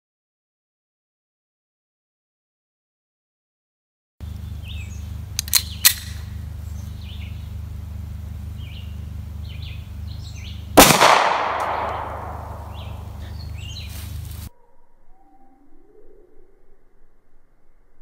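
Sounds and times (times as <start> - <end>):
steady low rumble: 4.2 - 14.5
birds chirping: 4.2 - 16.7
sharp clicks: 5.3 - 6.3, 10.8 - 12.8
pistol shot: 10.8 - 13.1.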